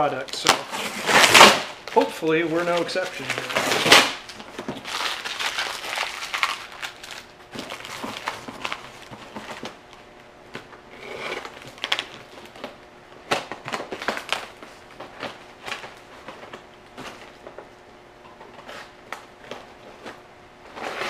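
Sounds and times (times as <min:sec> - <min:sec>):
cardboard and plastic rustling: 0:00.0 - 0:21.0
packaging ripping: 0:00.2 - 0:09.8, 0:11.0 - 0:12.7, 0:13.3 - 0:17.3
paper being crumpled: 0:00.2 - 0:09.8.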